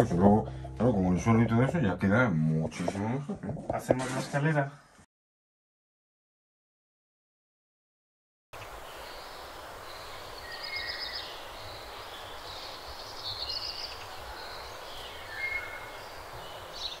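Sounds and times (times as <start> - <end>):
small birds chirping: 8.6 - 17.0
steady hiss with low rumble: 8.6 - 17.0.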